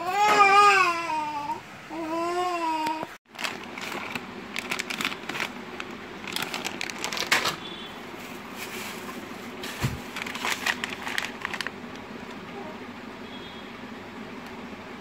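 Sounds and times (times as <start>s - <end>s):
plastic bags crinkling: 3.3s - 12.4s.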